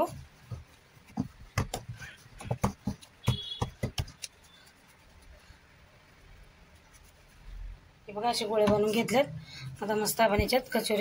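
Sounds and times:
dough knocking on metal plate: 1.2s - 4.2s.

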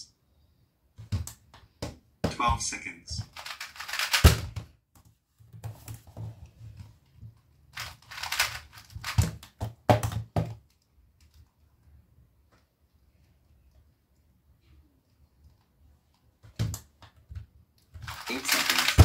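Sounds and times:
puzzle cube layers clicking: 3.2s - 4.5s, 7.8s - 9.6s, 18.0s - 19.0s.

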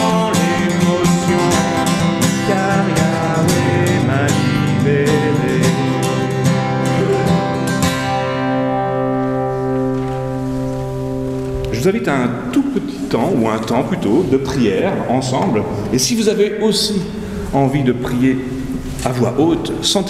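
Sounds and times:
people singing: 0.0s - 7.6s
acoustic guitar strumming: 0.0s - 15.2s.

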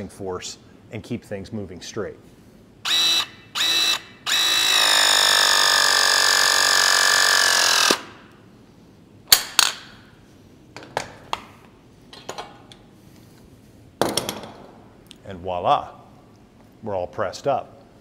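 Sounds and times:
press tool motor whine: 2.9s - 8.0s.

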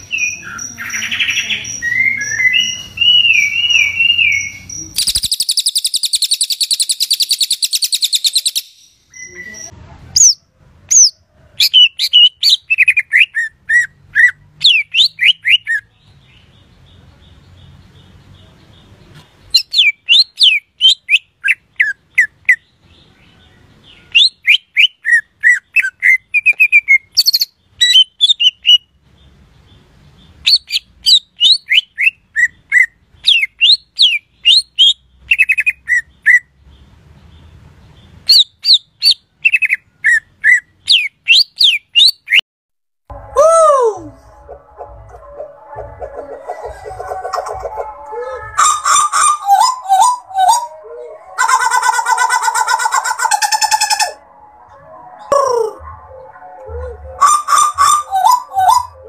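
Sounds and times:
bird singing whistled notes: 0.0s - 15.8s.

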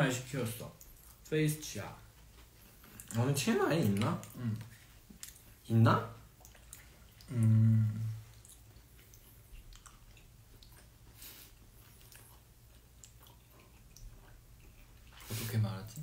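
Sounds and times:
quiet chewing: 0.7s - 16.0s
man humming: 7.3s - 8.2s.

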